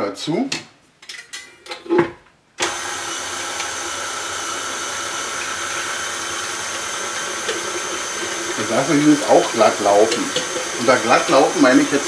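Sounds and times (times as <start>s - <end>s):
stand mixer motor whine: 2.6s - 12.0s.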